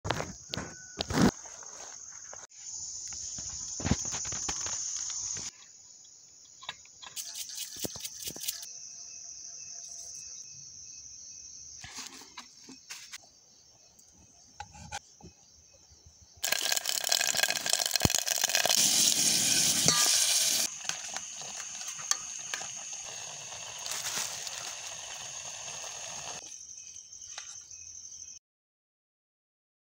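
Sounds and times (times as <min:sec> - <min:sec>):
night insects chirring: 0:00.3 - 0:28.4
sizzling in cooking pot: 0:16.4 - 0:26.5.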